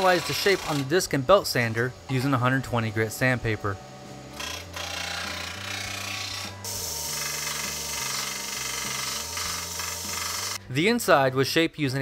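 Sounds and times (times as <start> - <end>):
sander motor hum: 0.0 - 10.6
metal grinding hiss: 5.2 - 10.6.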